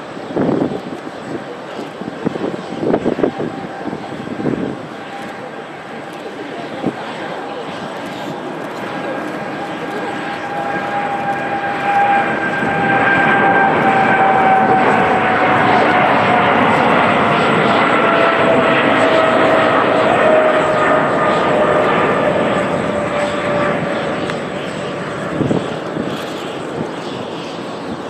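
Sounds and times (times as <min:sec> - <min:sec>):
jet airliner roaring at takeoff: 0:00.0 - 0:28.0.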